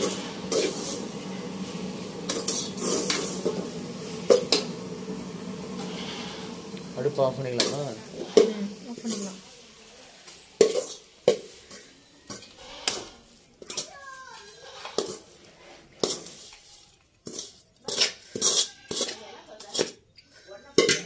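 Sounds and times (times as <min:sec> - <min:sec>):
metal spoon scraping metal pot: 0:02.2 - 0:03.6, 0:07.2 - 0:09.1, 0:17.2 - 0:21.0.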